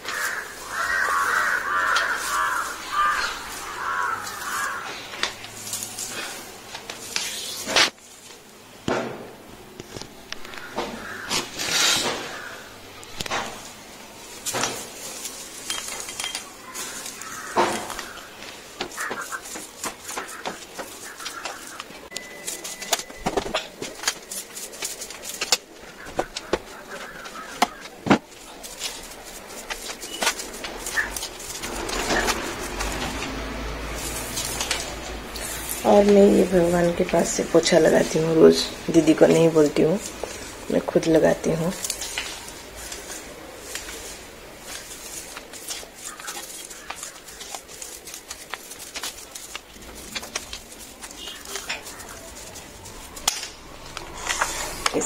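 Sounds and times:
broom sweeping tiled floor: 0.0s - 55.0s
bird-like call: 16.2s - 24.6s, 30.0s - 32.6s, 50.9s - 53.2s.

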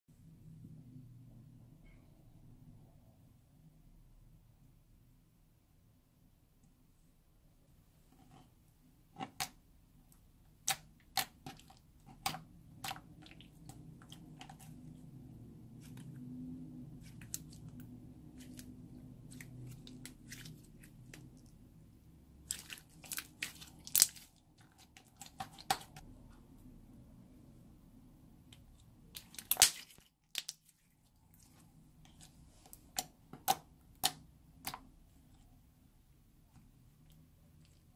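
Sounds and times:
slime squishing: 9.2s - 26.1s, 28.5s - 35.6s.

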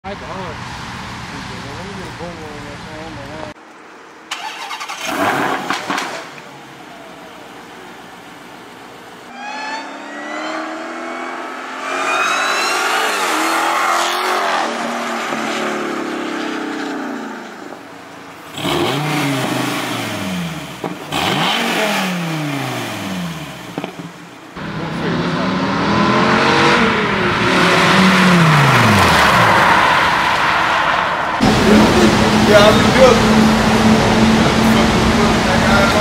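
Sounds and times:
car engine revving and accelerating: 9.3s - 17.8s, 18.4s - 24.0s, 24.6s - 36.0s.

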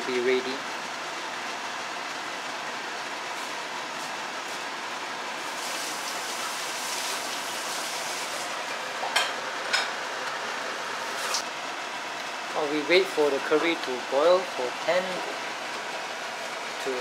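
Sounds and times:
gas burner hissing: 5.4s - 9.9s.

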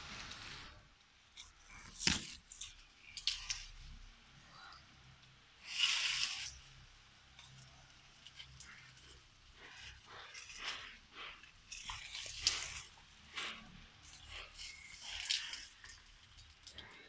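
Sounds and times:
palm fronds rustling: 5.6s - 6.8s, 7.7s - 17.0s.

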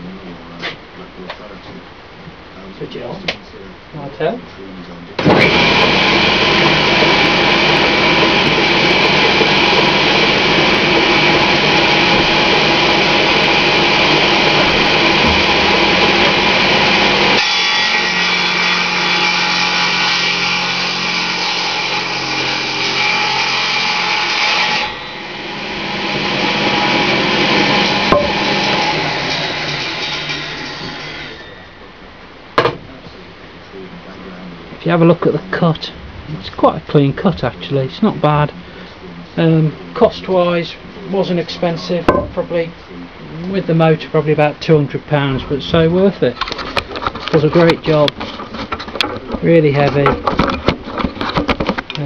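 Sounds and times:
table saw cutting wood: 5.2s - 31.7s, 43.5s - 48.8s.

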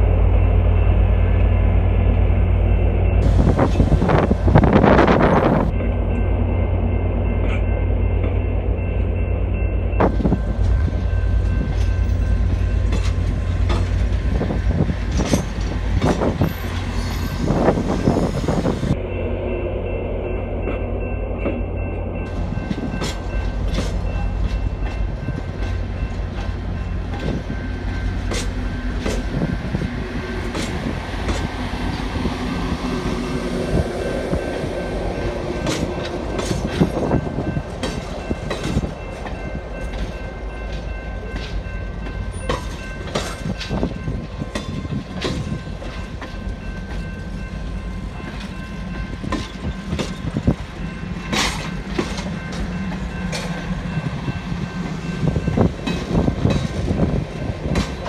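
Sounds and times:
wind on microphone: 3.2s - 5.7s, 29.2s - 39.0s
train wheels clicking on rails: 10.0s - 19.0s, 22.2s - 58.0s.

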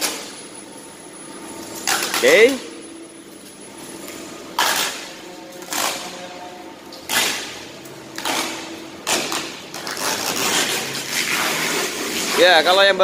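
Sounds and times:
plastic film crackling: 7.1s - 13.0s.

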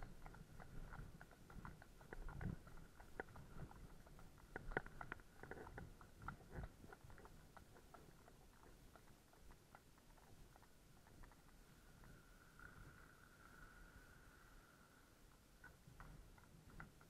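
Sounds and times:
horse hooves clip-clopping on road: 0.0s - 17.0s.

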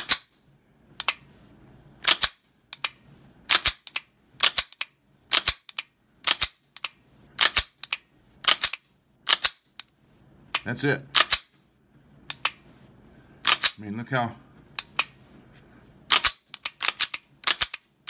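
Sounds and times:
pistol trigger clicks: 2.0s - 9.9s, 13.4s - 13.8s, 16.1s - 17.8s.

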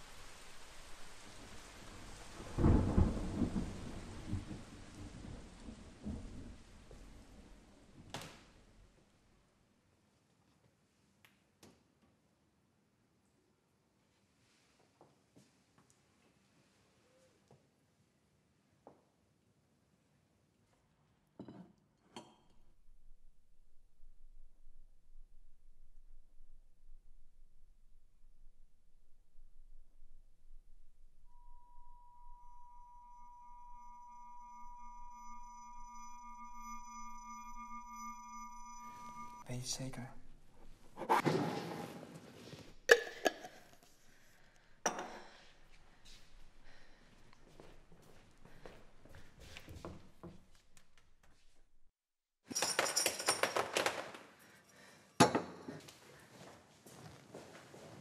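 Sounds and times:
low hum: 22.9s - 39.5s
high electronic tones: 31.8s - 39.4s
crockery clinking and rattling: 52.5s - 54.3s.

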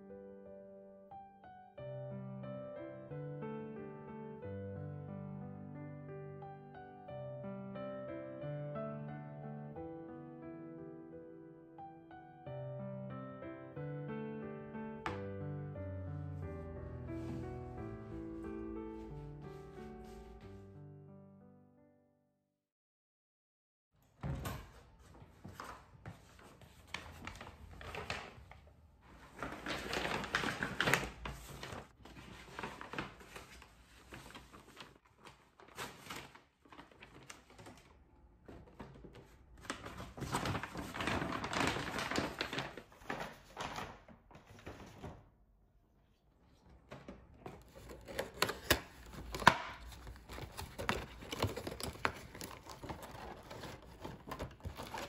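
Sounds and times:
paper bag rustling: 25.1s - 45.3s, 46.5s - 55.0s
plastic packaging crinkling: 26.8s - 38.0s, 38.8s - 45.0s, 47.5s - 55.0s.

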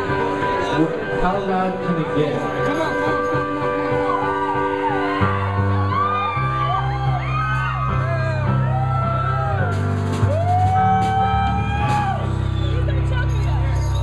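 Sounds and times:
low bass notes: 5.3s - 14.0s.

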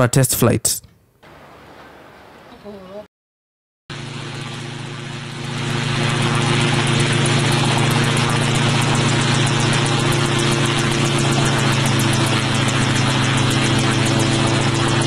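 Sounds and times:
model helicopter engine drone: 3.9s - 15.0s.

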